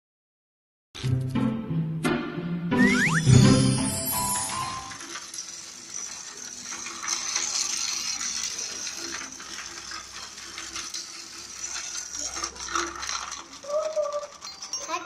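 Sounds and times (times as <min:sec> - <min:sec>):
toy train motor whirring: 0:02.9 - 0:15.0.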